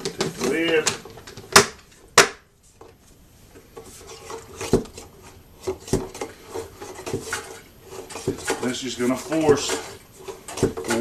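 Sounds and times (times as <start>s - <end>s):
faint steady hum: 0.0s - 11.0s
plastic knocks and clacks: 9.4s - 11.0s.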